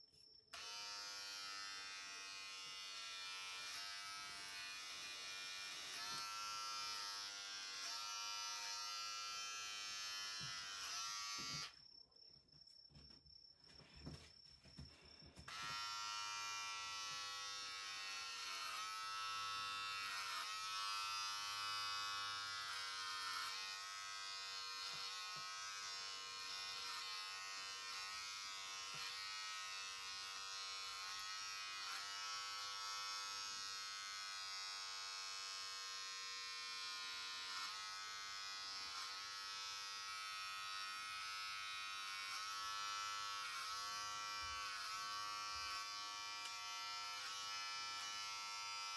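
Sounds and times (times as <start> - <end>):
electric hair clippers running: 0.5 - 11.8, 15.5 - 48.9.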